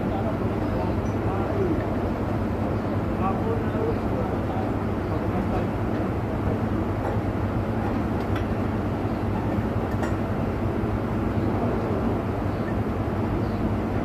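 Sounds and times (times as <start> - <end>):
low machine drone: 0.0 - 14.0.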